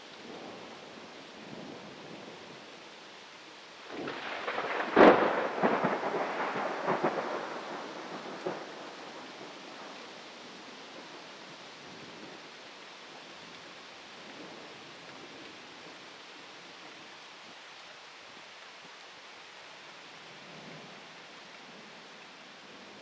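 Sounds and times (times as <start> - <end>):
steady rain: 0.0 - 23.0
thunder crack and rumble: 3.9 - 10.0.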